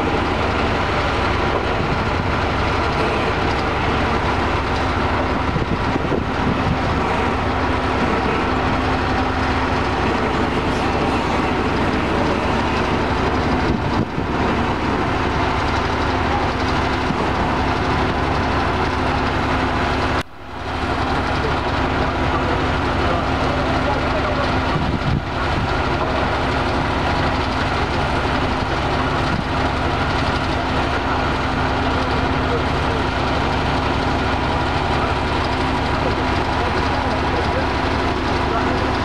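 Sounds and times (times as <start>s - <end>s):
broad even machinery noise: 0.0s - 39.0s
engine humming: 0.0s - 39.0s.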